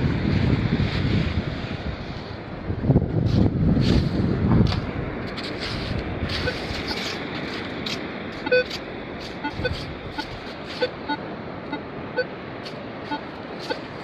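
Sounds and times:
metal detector beeps: 6.4s - 6.7s, 8.4s - 8.8s, 9.4s - 12.4s, 13.0s - 13.9s.

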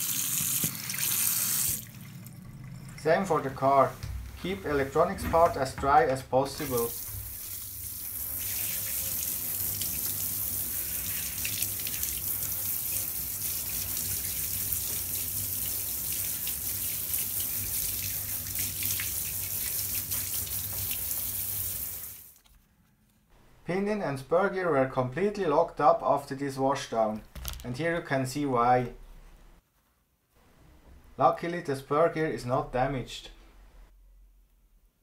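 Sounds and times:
shower spray and splashing: 0.0s - 1.9s, 6.6s - 22.4s.

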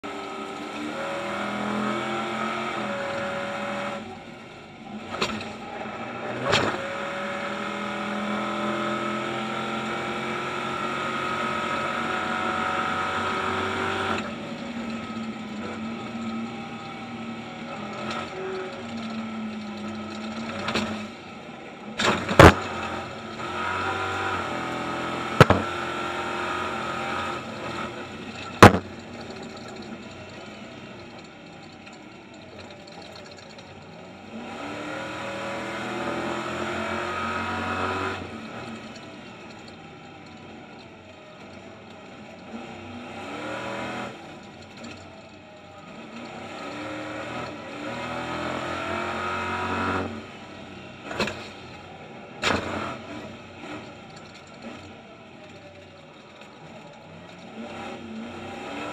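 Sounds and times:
race engine revving: 22.0s - 28.8s, 57.5s - 58.9s
sharp knocks: 25.4s - 25.7s, 28.6s - 28.9s.

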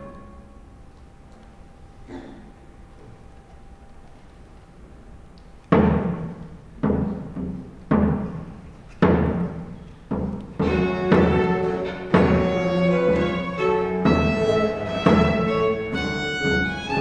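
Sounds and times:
baroque ensemble playing a march: 10.6s - 17.0s.

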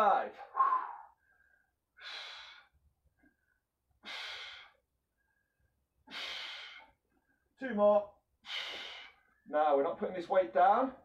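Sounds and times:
man breathing forcefully: 0.4s - 2.8s, 3.4s - 7.6s, 8.4s - 9.4s.

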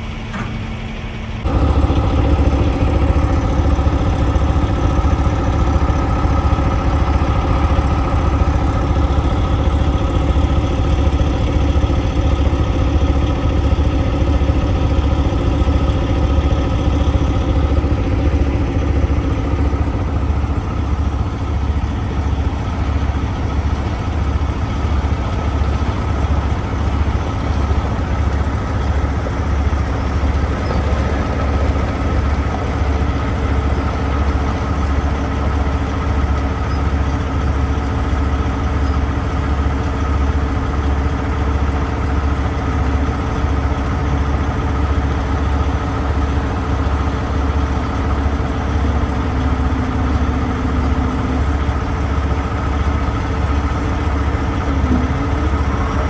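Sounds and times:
heavy diesel engine idling: 0.0s - 56.0s.

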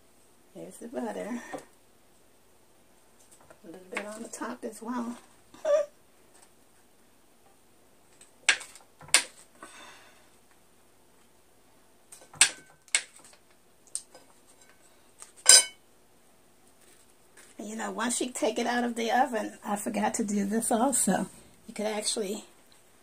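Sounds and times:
knife clinking against plate: 15.5s - 15.8s.

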